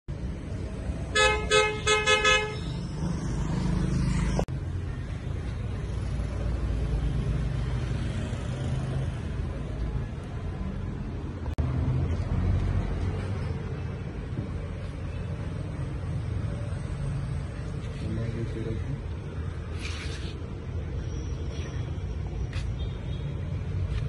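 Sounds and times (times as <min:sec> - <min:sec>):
low rumble of street traffic: 0:00.1 - 0:24.0
vehicle horn honking: 0:01.1 - 0:02.8.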